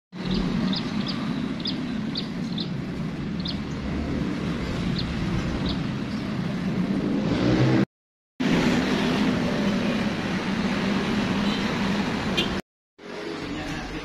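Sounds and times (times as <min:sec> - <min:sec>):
small bird chirping: 0:00.2 - 0:02.8, 0:03.4 - 0:03.9.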